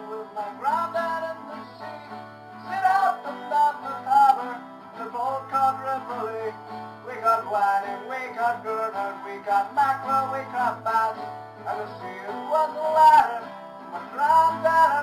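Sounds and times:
acoustic guitar strummed: 0.0 - 15.0.

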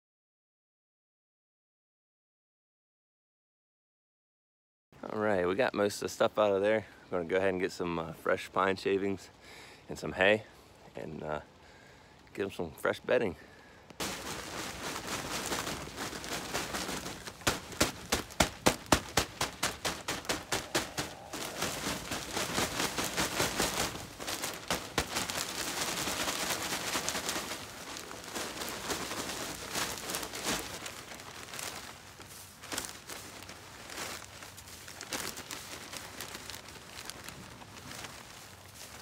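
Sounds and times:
plastic crackling: 13.8 - 39.0
rustle of plastic and shavings: 14.0 - 39.0.

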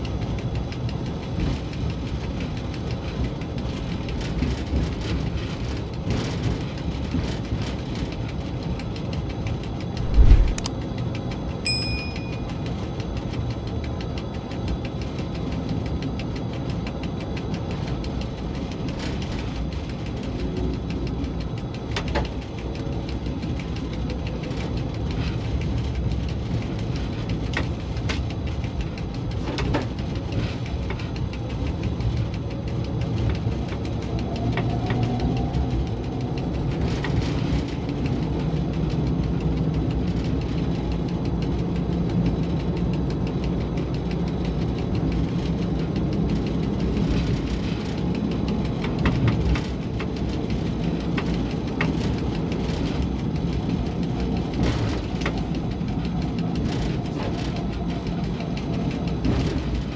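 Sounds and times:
diesel locomotive engine running: 0.0 - 59.9
sharp clicks: 8.9 - 13.5.

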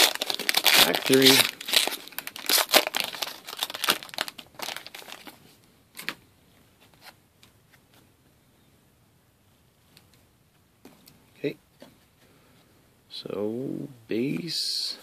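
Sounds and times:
foil wrapper crinkling and tearing: 0.0 - 5.4.

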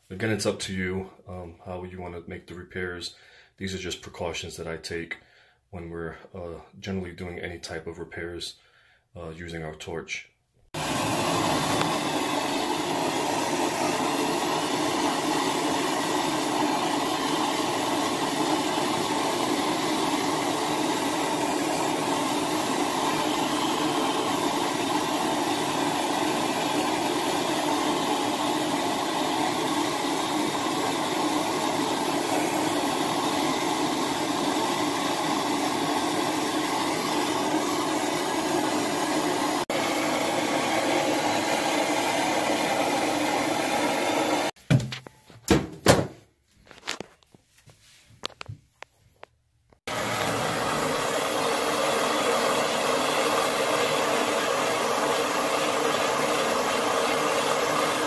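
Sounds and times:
gas torch hissing: 10.7 - 44.6, 49.8 - 58.0.

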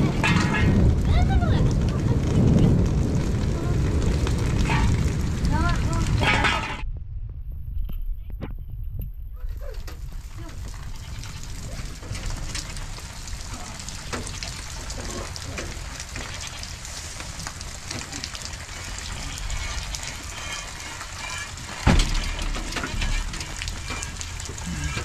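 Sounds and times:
rain dripping off roof: 0.0 - 6.8, 8.9 - 25.0
loud thump: 21.8 - 24.1.

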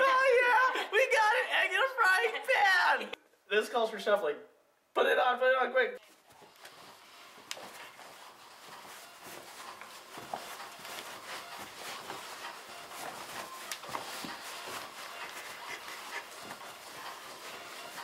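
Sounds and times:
light thuds of steps: 6.0 - 18.0
sock feet shuffling on carpet: 6.0 - 18.0.

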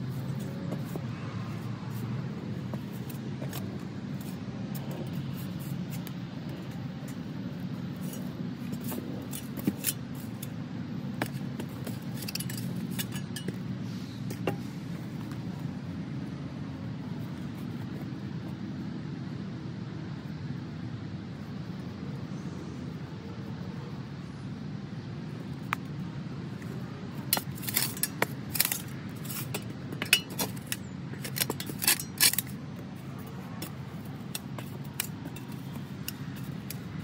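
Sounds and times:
shovel scraping soil: 7.9 - 10.6, 27.3 - 37.0
shovel clinking on stones: 27.4 - 32.6.

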